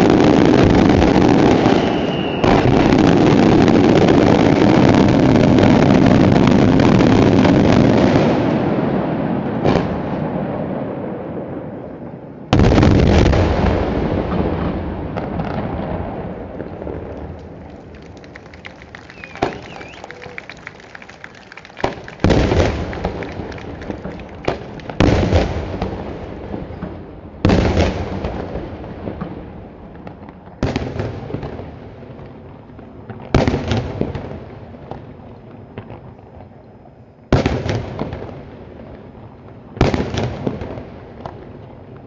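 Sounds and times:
small fireworks pops: 0:00.0 - 0:08.6, 0:12.6 - 0:42.0
fireworks bangs with rolling echo: 0:00.0 - 0:42.0.

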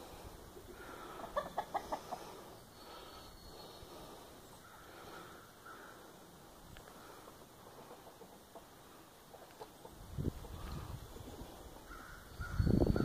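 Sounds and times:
chicken clucking: 0:01.0 - 0:02.5, 0:07.7 - 0:10.8.

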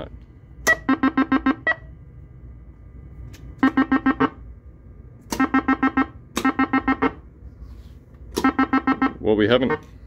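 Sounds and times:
pinball scoring beeps: 0:00.7 - 0:01.9, 0:03.6 - 0:04.4, 0:05.3 - 0:07.2, 0:08.4 - 0:09.8.

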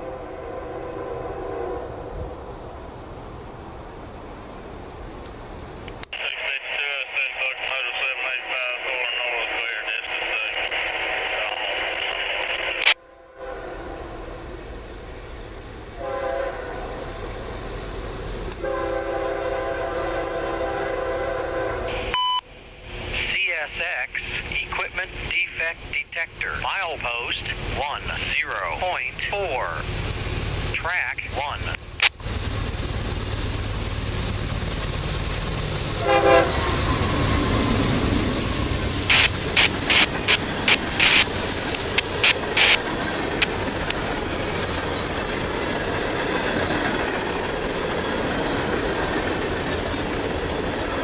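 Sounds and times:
train air horn: 0:00.0 - 0:02.1, 0:13.0 - 0:14.4, 0:16.0 - 0:17.0, 0:18.6 - 0:22.1, 0:36.0 - 0:36.8
low rumble of train: 0:00.0 - 0:51.0.

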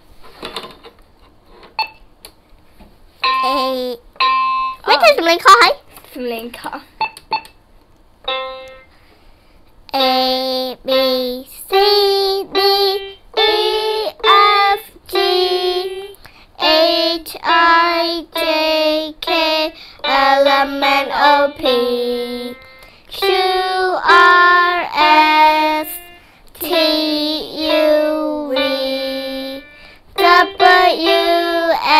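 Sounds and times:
young girls singing: 0:10.0 - 0:31.9.

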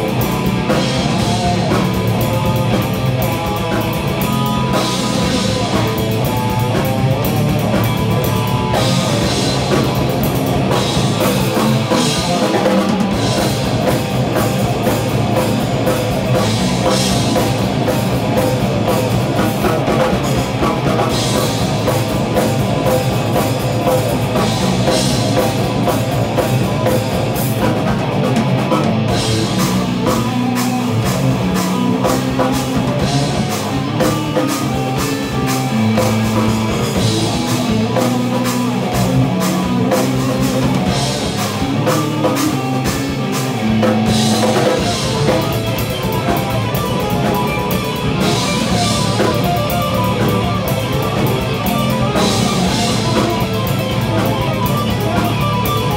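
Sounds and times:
live heavy rock band: 0:00.0 - 0:55.9.

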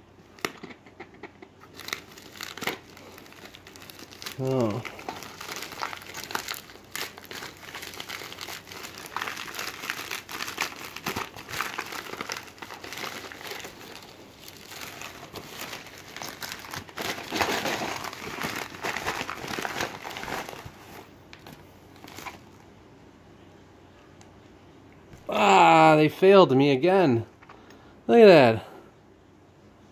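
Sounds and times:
packaging crinkling and rustling: 0:00.3 - 0:22.6.

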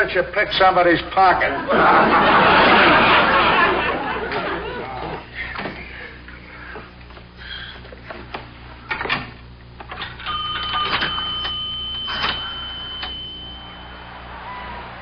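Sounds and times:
payphone coin and dialling clicks: 0:09.8 - 0:13.6
telephone ringing tones: 0:10.0 - 0:14.3.

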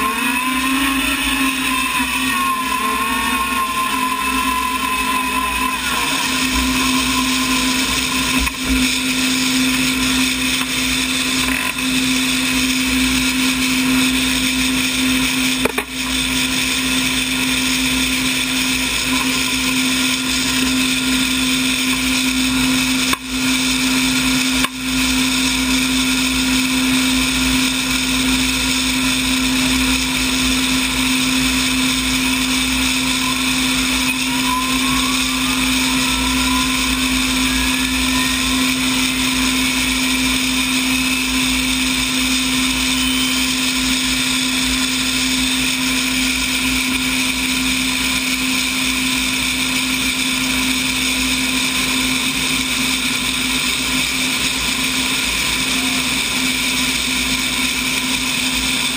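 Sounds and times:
helicopter engine idling whine: 0:00.0 - 0:58.9.

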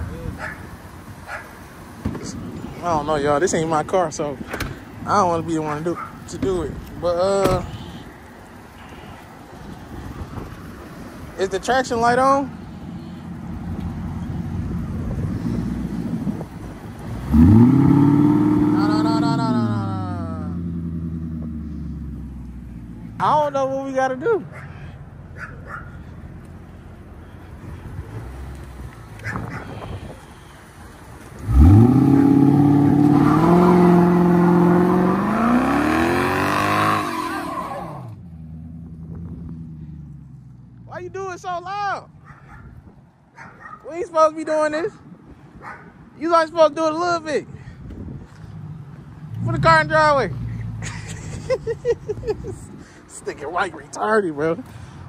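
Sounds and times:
car engine revving: 0:13.5 - 0:23.1, 0:31.4 - 0:40.4
tyres spinning and squealing: 0:31.4 - 0:38.2.

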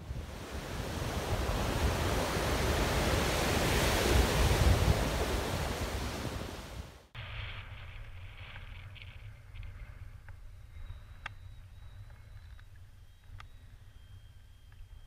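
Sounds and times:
ocean surf breaking on beach: 0:00.0 - 0:07.1
wind rumbling on microphone: 0:00.0 - 0:15.0.

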